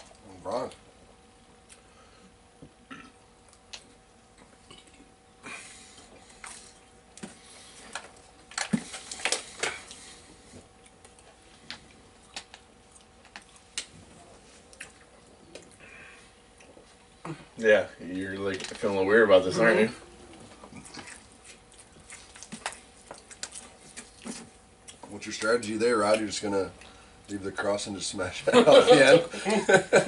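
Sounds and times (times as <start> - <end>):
people eating pizza: 0.0 - 30.0.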